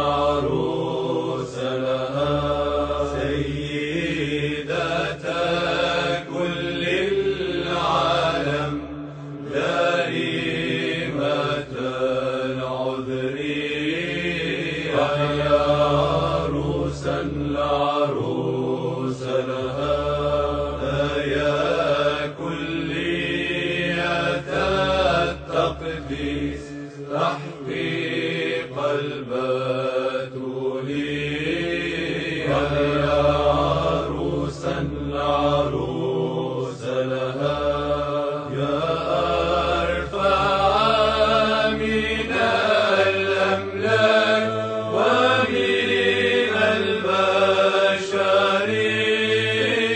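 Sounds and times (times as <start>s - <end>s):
voices singing liturgical chant: 0.0s - 49.9s.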